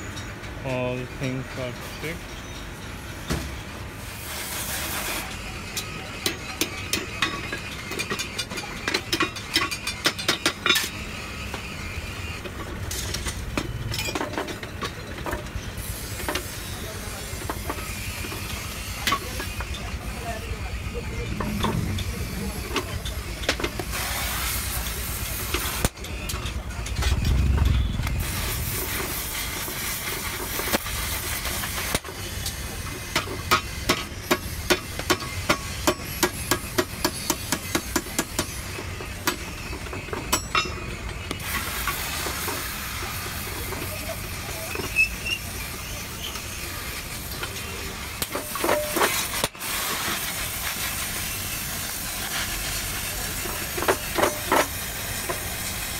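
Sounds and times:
steady hiss: 3.8 - 5.6, 15.5 - 39.4, 41.4 - 55.9.

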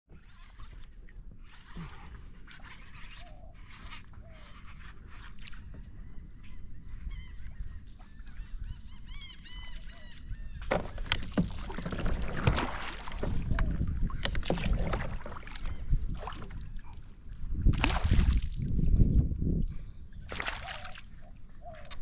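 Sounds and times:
bird calling: 3.0 - 11.2, 13.2 - 14.5, 15.4 - 16.1, 19.9 - 22.0
rod or kayak knocks: 10.6 - 15.4
fish splashing in water: 10.7 - 16.9, 17.7 - 18.7, 20.3 - 22.0.

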